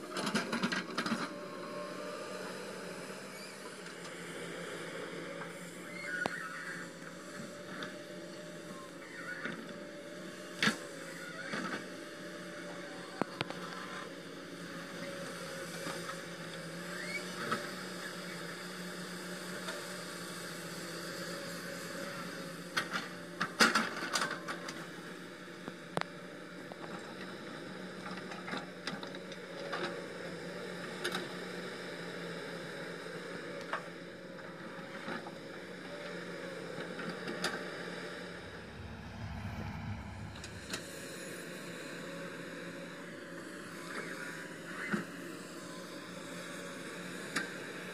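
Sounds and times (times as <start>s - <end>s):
excavator diesel engines droning: 35.8s - 41.2s.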